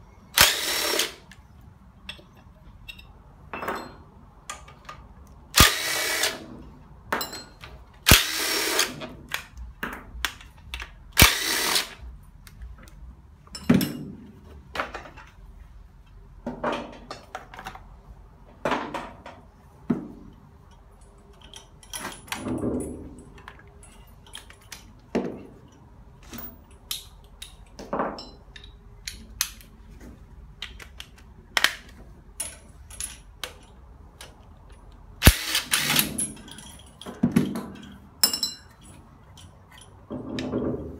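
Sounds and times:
metal tools clicking and clanking: 2.0s - 5.0s, 7.1s - 8.1s, 20.4s - 25.0s, 25.6s - 29.7s, 32.4s - 40.6s
cordless driver spinning bolts: 35.2s - 36.2s.

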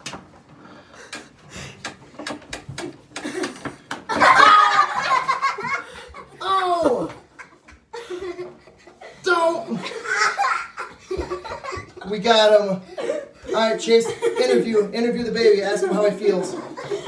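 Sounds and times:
people laughing: 3.1s - 12.2s, 12.8s - 14.9s, 15.7s - 17.0s.

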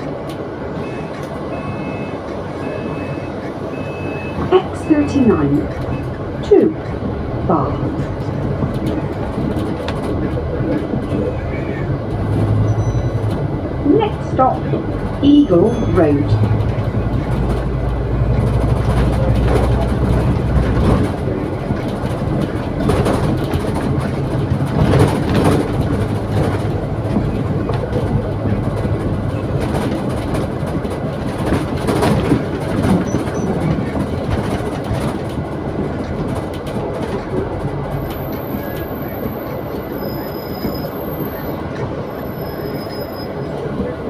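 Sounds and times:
bus engine and road rumble: 0.0s - 44.0s
rattles and knocks from bumps: 7.8s - 11.4s, 16.3s - 38.8s.

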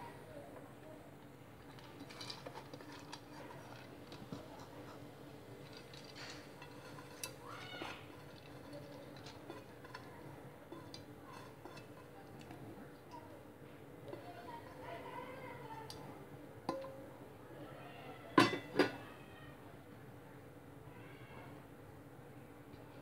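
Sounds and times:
hand mixing food in a pot: 1.3s - 17.4s.

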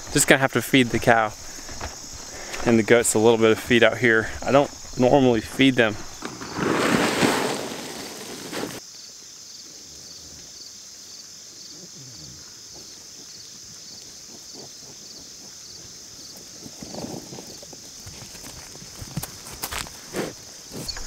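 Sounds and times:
faint footfalls: 0.0s - 8.8s, 16.8s - 21.0s
crickets chirring: 0.0s - 21.0s
grain pouring from a sack: 5.5s - 8.8s.

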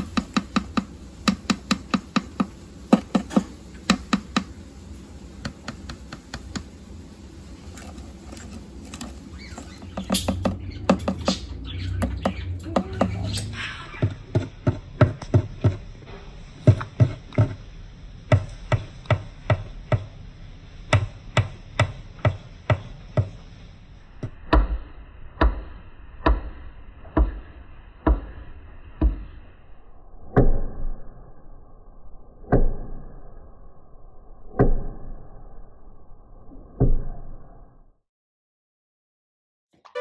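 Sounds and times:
parrot beak knocking on wood: 9.9s - 13.3s.

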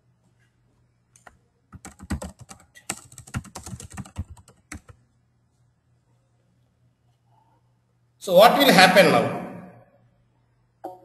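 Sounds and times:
computer keyboard typing: 1.2s - 5.0s.

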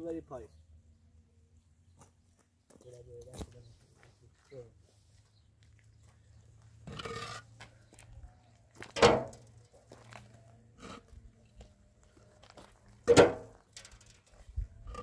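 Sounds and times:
concrete blocks scraping: 6.8s - 7.6s
blocks clunking in metal wheelbarrow: 8.8s - 9.7s, 13.0s - 15.0s.

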